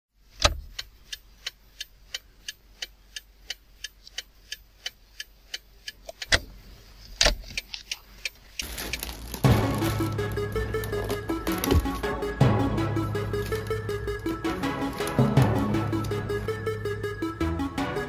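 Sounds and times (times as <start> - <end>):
sharp ticking: 7.6 - 18.0.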